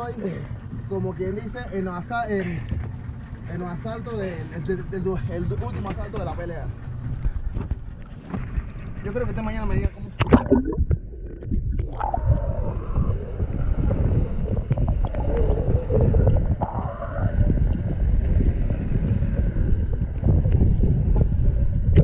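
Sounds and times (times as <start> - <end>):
underwater churning rumble: 0.0 - 22.0
muffled wavering tones: 9.9 - 22.0.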